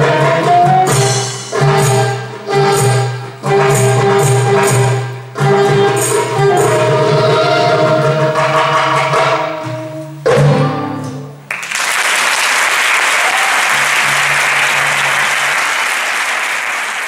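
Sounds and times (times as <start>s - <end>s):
live band playing: 0.0s - 12.0s
audience applause: 11.5s - 17.0s.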